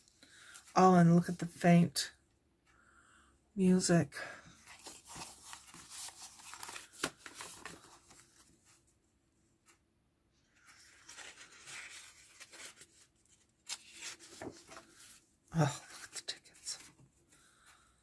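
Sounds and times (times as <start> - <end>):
paper rustling and sliding: 4.6 - 8.8, 10.5 - 15.2.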